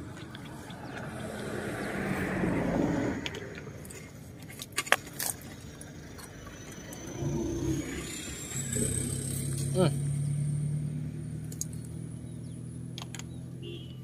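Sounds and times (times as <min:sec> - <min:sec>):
vehicle passing by: 0:00.0 - 0:04.0, 0:06.0 - 0:13.0
sharp clicks and taps: 0:12.9 - 0:13.3.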